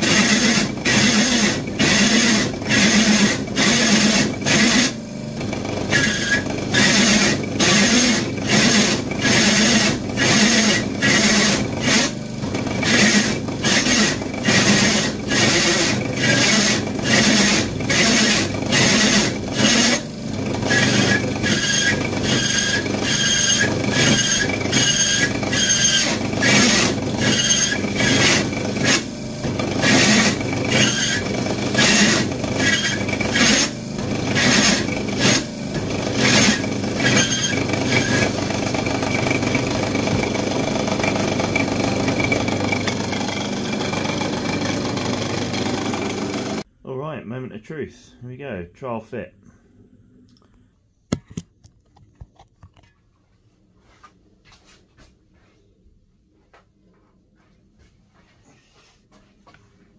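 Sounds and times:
hole saw cutting steel: 0.0s - 5.0s, 5.6s - 46.6s
pulsing metal squeal: 20.7s - 26.1s, 27.2s - 28.2s, 36.3s - 38.2s.

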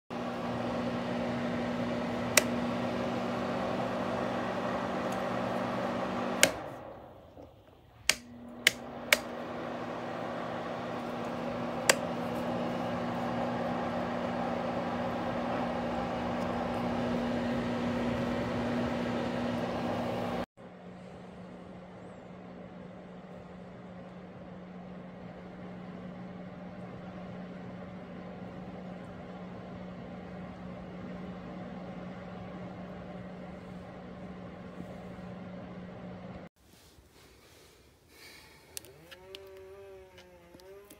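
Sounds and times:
space heater fan humming: 0.1s - 40.9s
control knob clicks: 8.0s - 9.3s.

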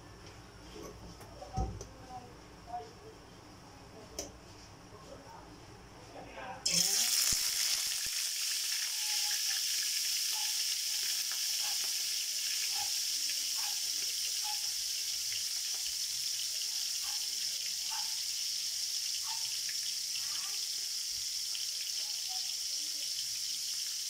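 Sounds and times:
pork sizzling in oil: 6.6s - 24.0s.

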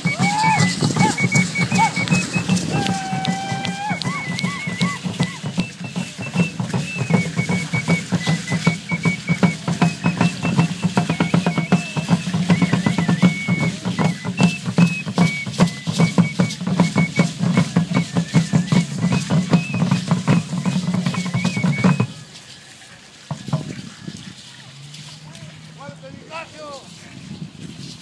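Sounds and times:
drum beaten fast: 0.0s - 22.1s
thin high melody: 0.0s - 22.2s.

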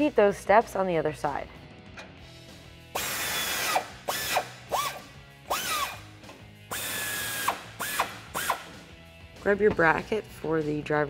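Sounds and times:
cordless power driver whine: 3.0s - 8.8s.

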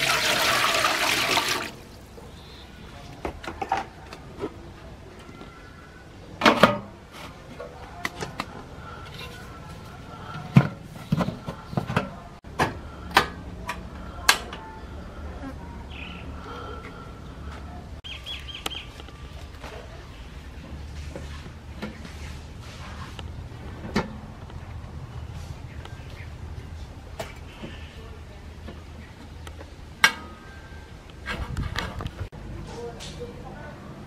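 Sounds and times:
water pouring into metal pot: 0.0s - 1.9s
faint bird chirps: 2.2s - 3.0s.

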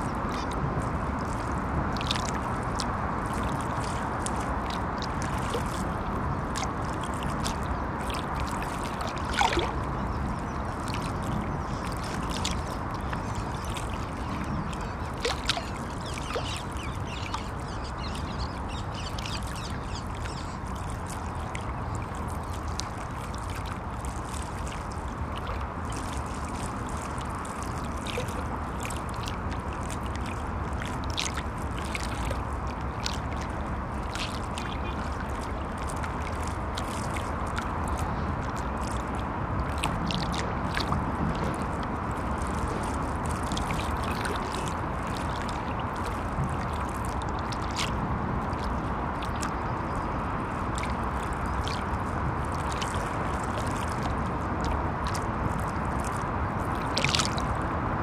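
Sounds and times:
river water lapping: 0.0s - 58.0s
traffic rumble on bridge: 26.8s - 58.0s.

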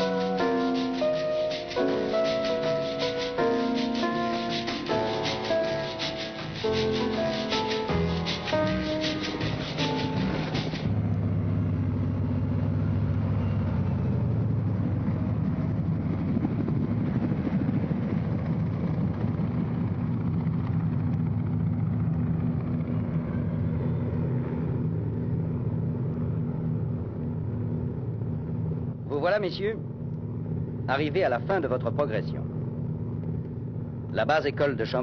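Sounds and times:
helicopter flying past: 0.0s - 34.1s.

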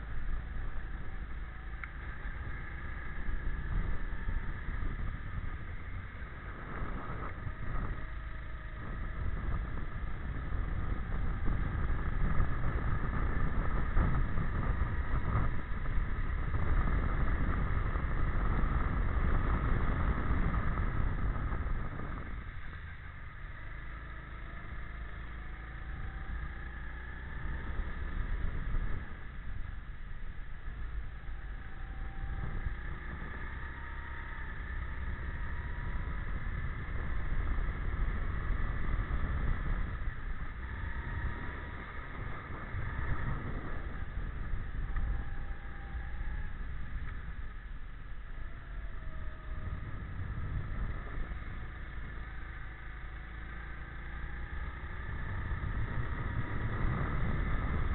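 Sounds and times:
heavy low rumble: 0.0s - 23.6s
go-kart engine running: 0.0s - 57.9s.

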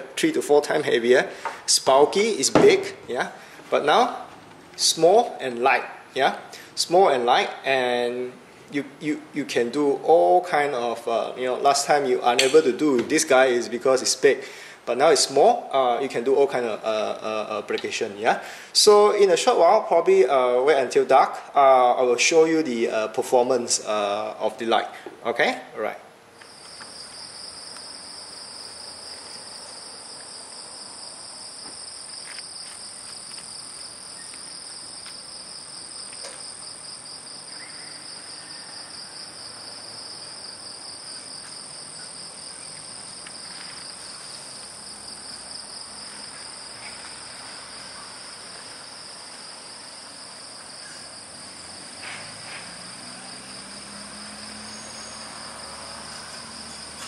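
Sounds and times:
crickets trilling: 26.4s - 57.0s.

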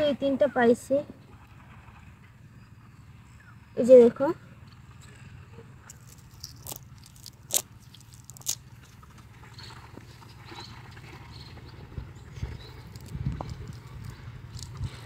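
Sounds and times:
steady low rumble: 5.7s - 15.0s
net rustling and crackling: 5.9s - 9.2s, 12.7s - 15.0s.

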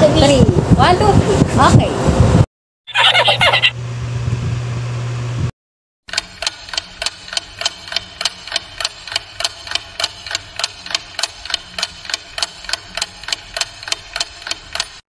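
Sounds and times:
clock ticking: 6.1s - 15.0s.

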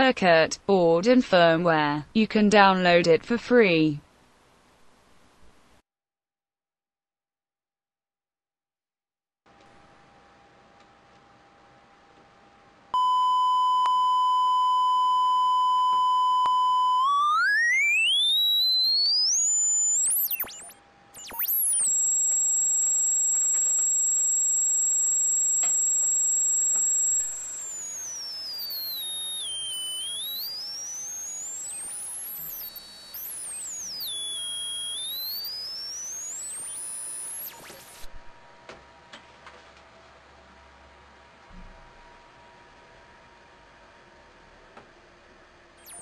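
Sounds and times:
electronic test tone sweeping: 13.0s - 38.3s, 45.8s - 46.0s.

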